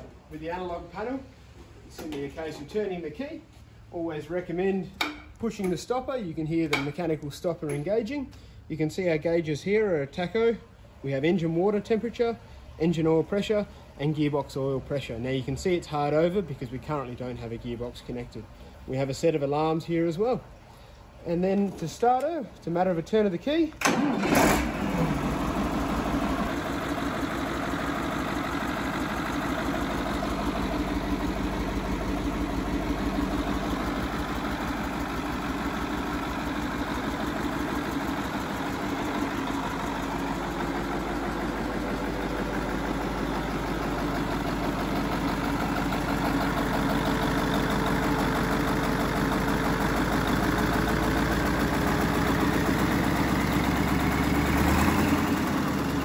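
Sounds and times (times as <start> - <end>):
diesel engine idling: 20.4 - 56.0.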